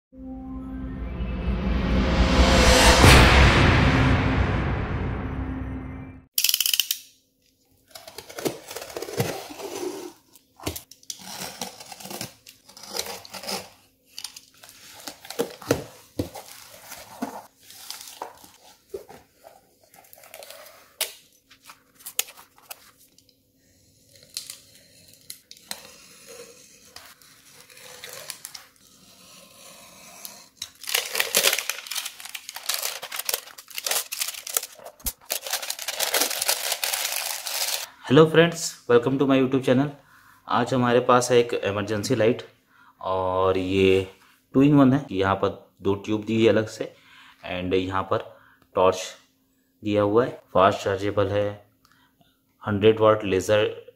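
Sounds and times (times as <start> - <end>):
cardboard tearing and scraping: 7.9 - 13.9, 14.5 - 21.0, 24.3 - 37.9
knife slitting packing tape: 7.9 - 15.8, 24.1 - 37.9
plastic wrapping crinkling: 10.9 - 23.2, 30.6 - 37.9.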